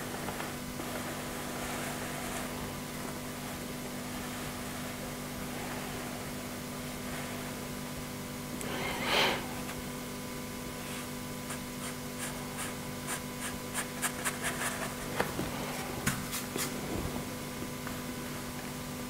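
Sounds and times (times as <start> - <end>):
steady low hum: 0.0 - 19.0
brush strokes on paper: 8.6 - 9.9.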